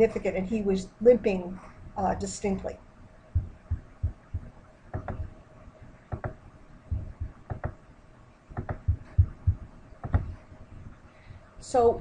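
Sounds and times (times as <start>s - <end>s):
faint steady hum: 0.0s - 12.0s
soft knocks and clicks: 4.9s - 5.3s, 6.1s - 6.4s, 7.5s - 7.8s, 8.6s - 9.3s, 10.0s - 10.4s.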